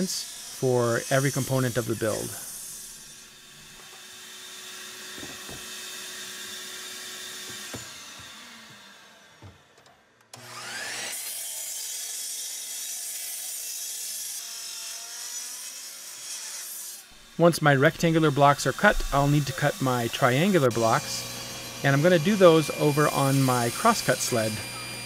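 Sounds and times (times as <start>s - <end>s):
chop saw running: 0.0s - 9.7s, 10.3s - 25.0s
saw motor whining up to speed: 0.0s - 9.7s, 10.3s - 25.0s.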